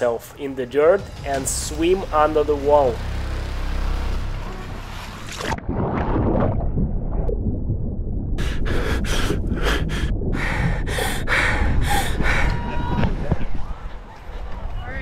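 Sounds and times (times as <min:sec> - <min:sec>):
hard breathing: 0:08.4 - 0:12.8.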